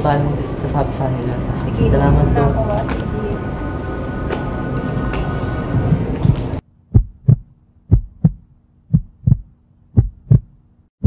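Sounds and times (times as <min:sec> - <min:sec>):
loud noisy background: 0:00.0 - 0:06.6
heartbeat thumps: 0:01.6 - 0:10.6.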